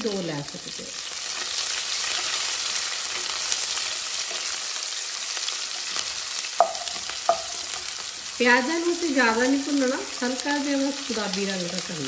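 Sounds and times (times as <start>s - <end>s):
onions sizzling in hot oil: 0.0s - 12.0s
spatula knocking against steel pot: 6.6s - 7.8s.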